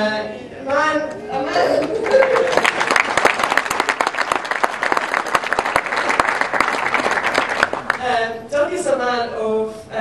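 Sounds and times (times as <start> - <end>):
people clapping: 1.7 - 8.1.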